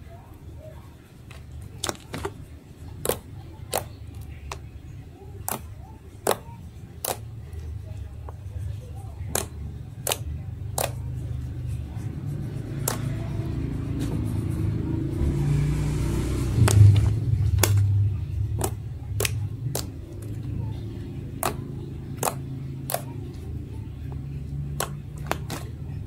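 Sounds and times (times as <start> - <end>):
slime popping and clicking: 5.5 - 7.3, 22.2 - 23.1.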